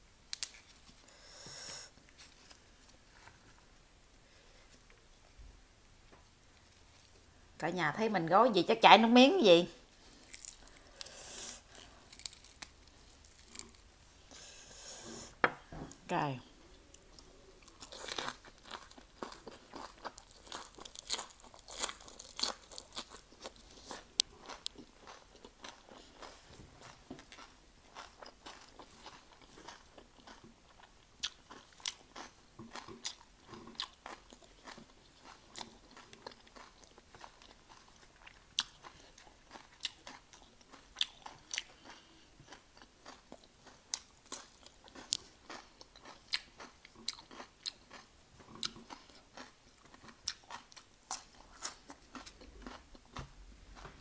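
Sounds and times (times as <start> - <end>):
person chewing crunchy food: 10.0 - 15.4, 16.6 - 54.0.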